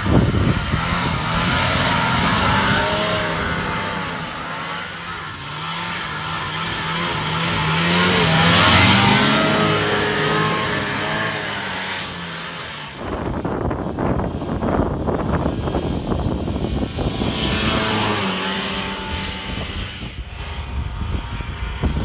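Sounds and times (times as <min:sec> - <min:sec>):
snowmobile engine running: 0:00.0 - 0:22.0.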